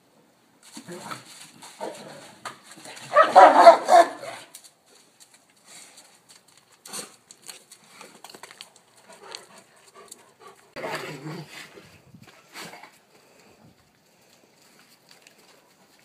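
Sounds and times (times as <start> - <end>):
paws scuffling on dirt: 0.6 - 16.0
dog barking loudly: 3.1 - 4.5.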